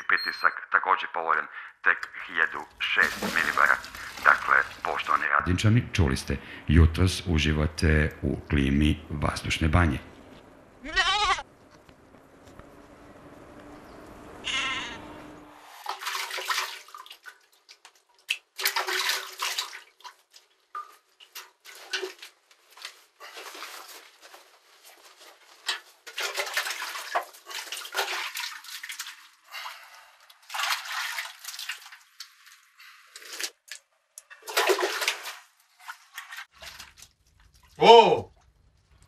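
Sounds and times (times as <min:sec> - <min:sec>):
milk squirting into metal pail: 0:03.0 - 0:05.1, 0:25.4 - 0:39.0
brief pitched call: 0:14.4 - 0:15.2.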